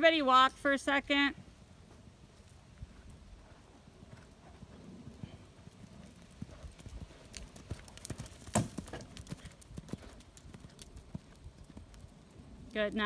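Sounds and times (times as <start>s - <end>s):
hoofbeats on sand: 1.8s - 11.3s.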